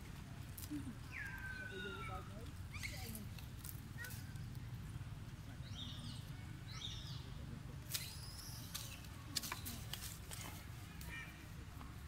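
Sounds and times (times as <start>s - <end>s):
dry leaves and twigs crackling: 0.0s - 6.4s, 7.8s - 12.0s
twigs snapping: 7.9s - 11.1s.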